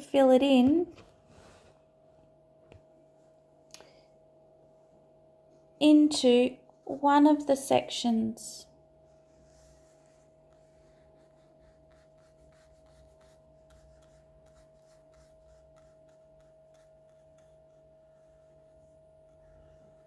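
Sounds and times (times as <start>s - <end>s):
faint steady hum: 0.0s - 20.0s
paintbrush strokes on paper: 0.9s - 2.0s, 9.0s - 20.0s.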